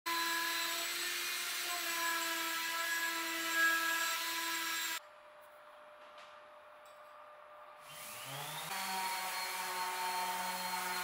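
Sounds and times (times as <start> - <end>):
woodworking machine motor whine: 7.9 - 11.0.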